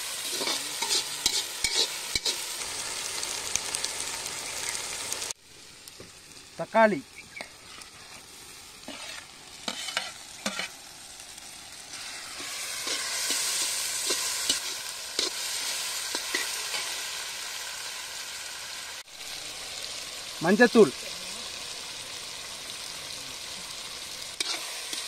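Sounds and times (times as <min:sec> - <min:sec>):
vegetables sizzling in oil: 0:00.0 - 0:25.0
ladle scraping a pan: 0:00.2 - 0:02.4, 0:08.8 - 0:10.8.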